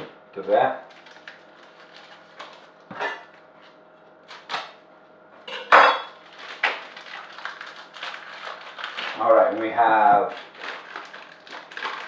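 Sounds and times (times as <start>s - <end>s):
packaging rustling and knocks: 10.1s - 12.0s.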